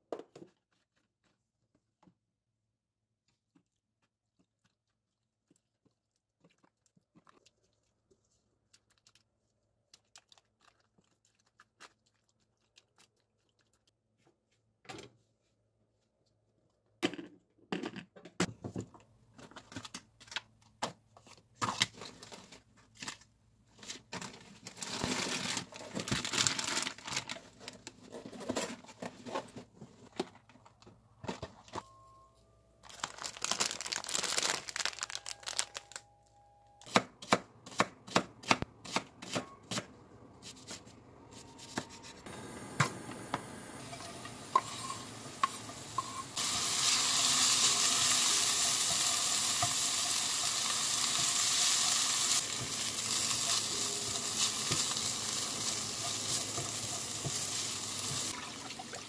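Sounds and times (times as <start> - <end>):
plastic packaging crinkling: 24.6 - 28.0, 32.8 - 36.1.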